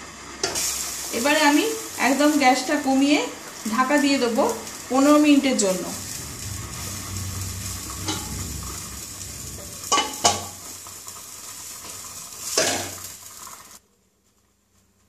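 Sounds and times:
pot bubbling: 0.0s - 15.0s
metal lid clanking on pot: 9.8s - 10.6s.

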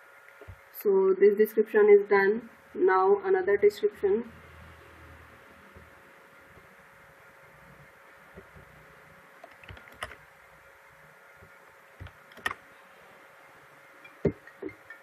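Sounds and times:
faint hum: 0.0s - 15.0s
keyboard and mouse clicks: 9.4s - 10.2s, 11.4s - 12.6s, 14.0s - 15.0s.

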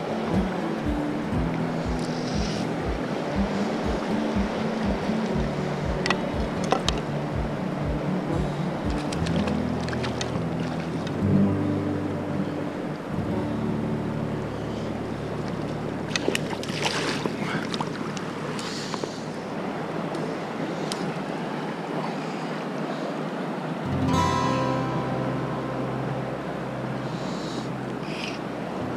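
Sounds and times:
small water splash: 0.0s - 11.2s, 15.4s - 22.0s
stream running over rocks: 0.0s - 28.9s.

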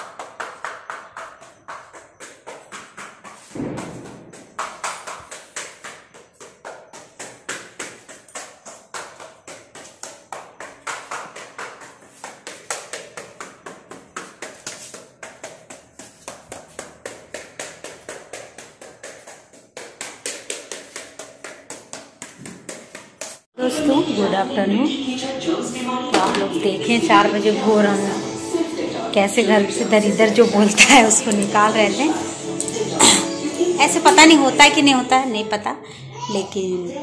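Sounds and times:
stick beating bamboo basket: 0.0s - 23.5s.

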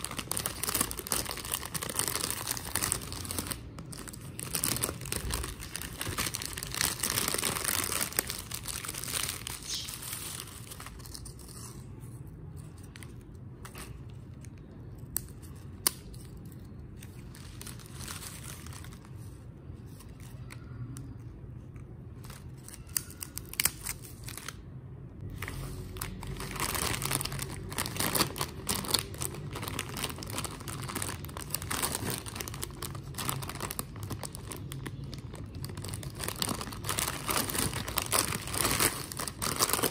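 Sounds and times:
chip bags crinkling: 0.0s - 11.7s, 25.9s - 39.9s.

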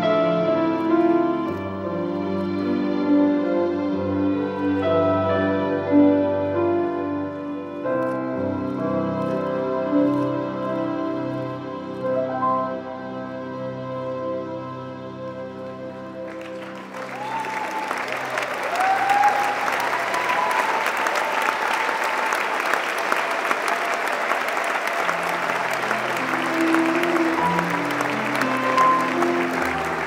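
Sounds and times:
waltz music: 0.0s - 18.7s, 22.6s - 30.0s
audience applause: 16.2s - 30.0s
audience cheering: 16.3s - 30.0s.

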